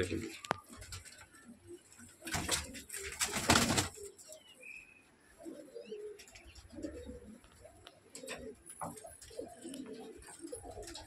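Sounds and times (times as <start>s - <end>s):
pigeons cooing: 0.6s - 11.0s
wing flapping: 2.2s - 4.1s.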